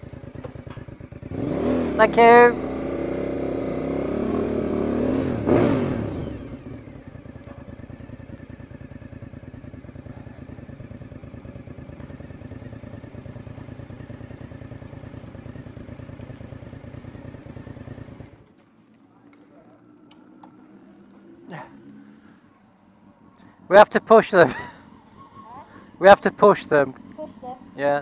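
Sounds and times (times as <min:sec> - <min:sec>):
motorcycle engine revving: 0:00.0 - 0:18.6, 0:19.4 - 0:28.0.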